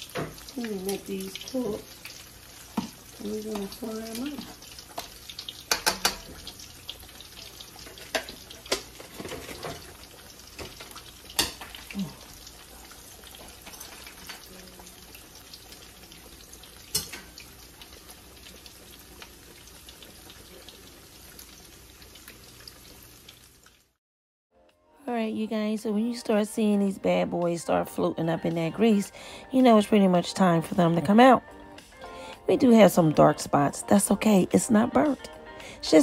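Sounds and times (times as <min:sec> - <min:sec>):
food sizzling in hot oil: 0:00.0 - 0:24.0
metal tongs clicking on pan: 0:05.0 - 0:06.4, 0:10.6 - 0:11.7, 0:16.9 - 0:17.4.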